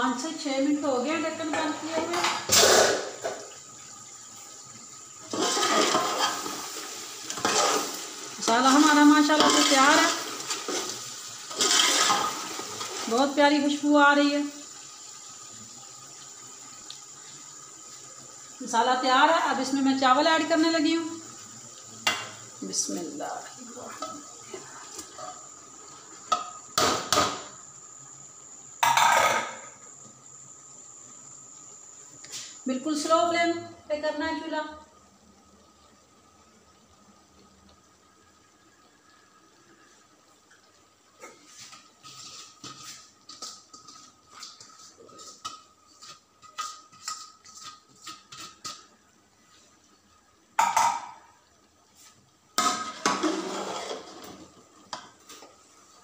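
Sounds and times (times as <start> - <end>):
scraping and rattling against pot: 5.2 - 13.0, 41.7 - 48.9, 52.6 - 54.4
crackling ticks from pot: 16.8 - 17.1, 42.6 - 49.0.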